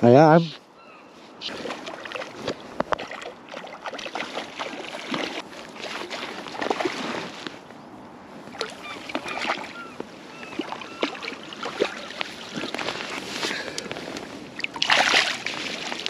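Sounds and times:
landing net dipping into water: 1.5s - 7.4s, 10.6s - 13.0s, 14.6s - 16.0s
fish splashing at water surface: 14.6s - 16.0s.

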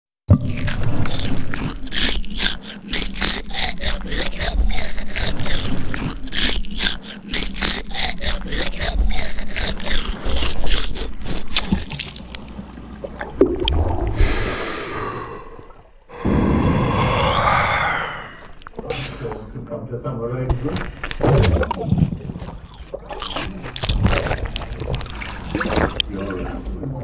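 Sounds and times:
wet mouth clicks and smacks: 0.4s - 12.6s, 18.4s - 18.8s, 20.8s - 26.1s.

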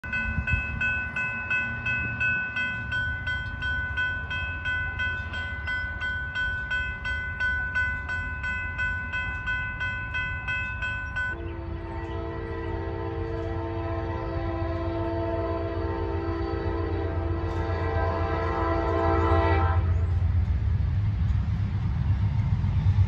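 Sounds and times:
crossing bells ringing: 0.0s - 19.5s
train horn: 11.4s - 20.1s.

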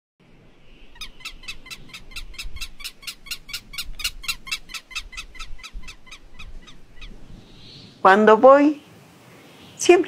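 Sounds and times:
animal calling in rapid short notes: 1.0s - 7.2s.

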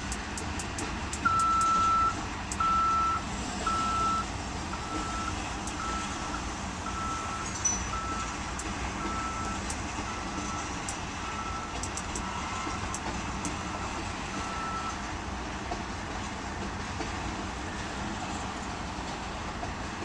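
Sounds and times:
freight train rumbling past: 0.0s - 20.0s
wheels clicking on rails: 0.0s - 20.0s
electronic beep: 6.9s - 8.3s.

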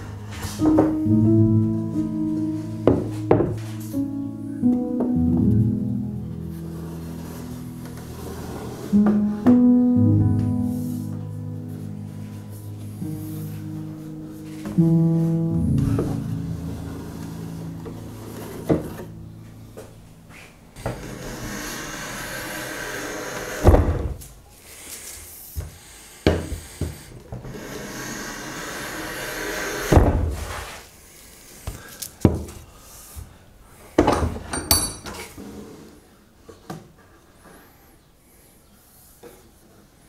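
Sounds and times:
hand plane rasping on wood: 20.9s - 23.7s, 27.5s - 29.9s.

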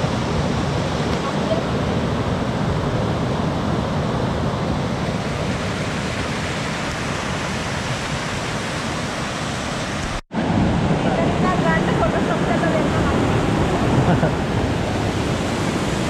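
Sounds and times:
waterfall rushing: 4.8s - 16.0s.

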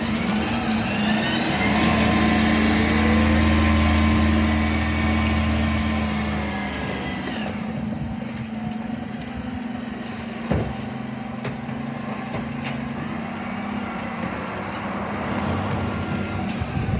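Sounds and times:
diesel engine idling: 0.0s - 8.3s.

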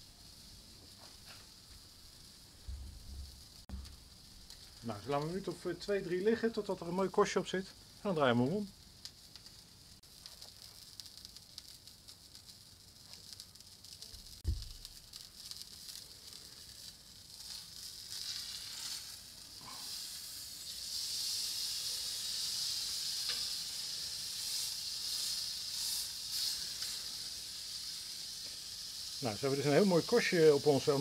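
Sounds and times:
steak sizzling on griddle: 0.0s - 31.0s
low thump: 2.6s - 4.0s, 14.4s - 14.8s.

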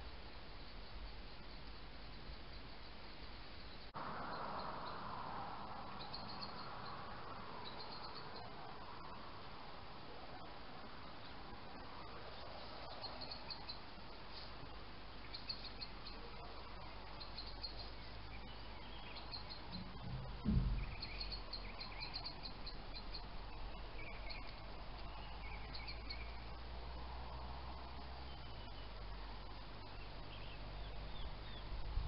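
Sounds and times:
low steady hum: 0.0s - 32.0s
faint high chirping: 0.5s - 9.4s, 10.0s - 32.0s
low thump: 19.7s - 21.5s.

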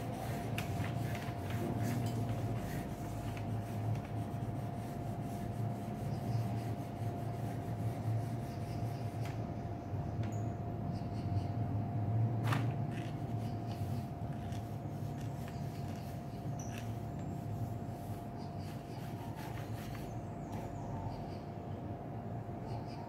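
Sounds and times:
pencil scratching on paper: 0.0s - 9.2s.

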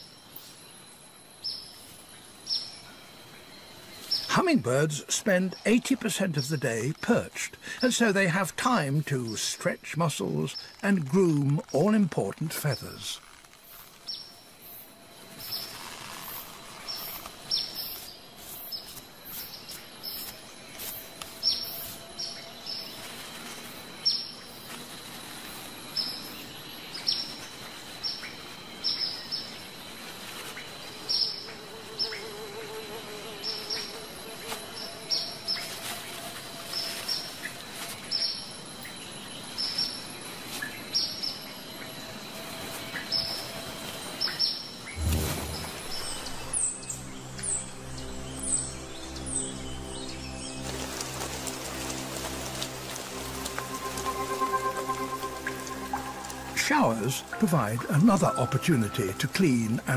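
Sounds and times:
hummingbirds chirping: 42.9s - 59.9s
thin high whine: 53.0s - 57.2s.

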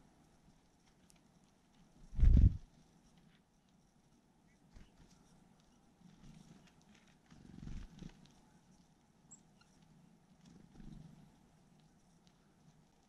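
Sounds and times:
birds pecking at wire feeder: 6.0s - 13.0s.

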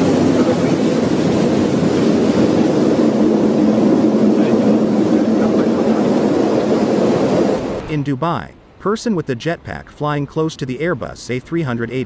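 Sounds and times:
rain on windscreen: 0.0s - 7.8s
aircraft engine and airflow noise: 0.0s - 8.8s.

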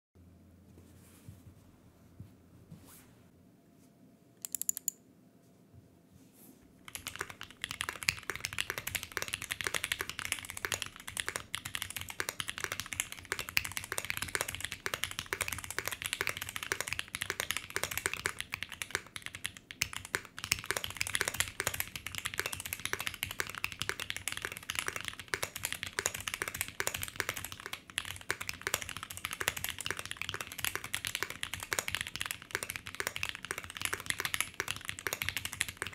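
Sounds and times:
sharp clicks: 4.4s - 5.0s
fast typing on mechanical keyboard: 6.8s - 35.9s.

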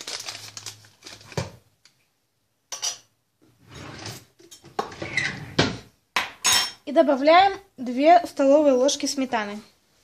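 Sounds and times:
kitchen utensils clattering: 2.7s - 6.8s.

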